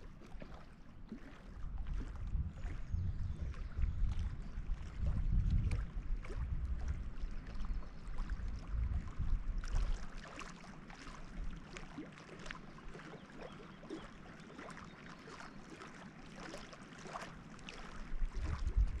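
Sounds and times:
wind rumble on microphone: 0.0 - 10.2, 17.7 - 19.0.

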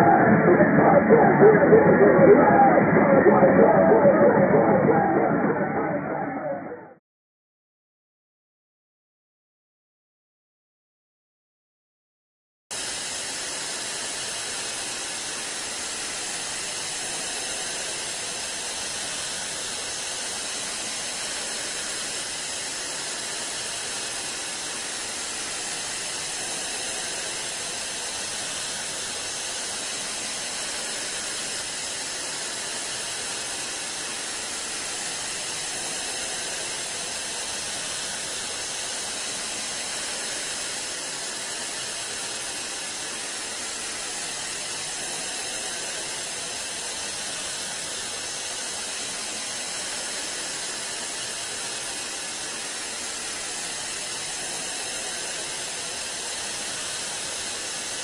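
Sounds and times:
tv static hiss: 0.0 - 6.9.

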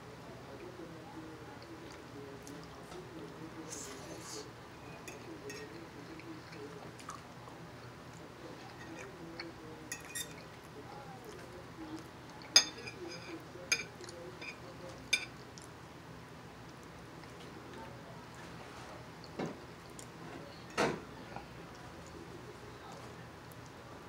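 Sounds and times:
quiet chewing: 0.6 - 15.9, 16.6 - 23.9
fork clinking against plate: 4.9 - 5.8, 9.9 - 10.4, 12.5 - 15.3.

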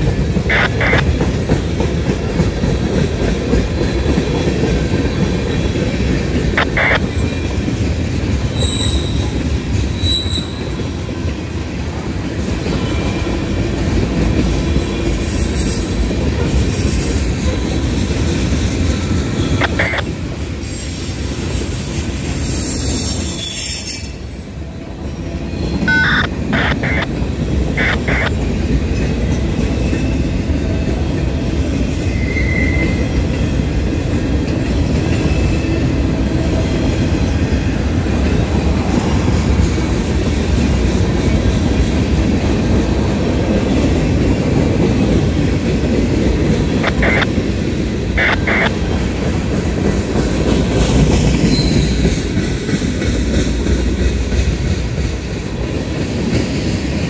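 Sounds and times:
freight train rumbling past: 0.0 - 57.0
high wheel squeals: 8.5 - 10.8, 19.4 - 24.8, 32.0 - 33.3, 51.4 - 52.3.

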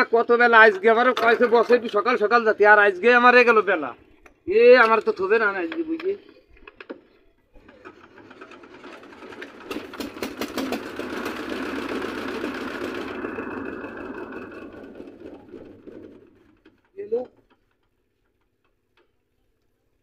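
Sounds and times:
diesel engine knocking: 8.9 - 16.9.

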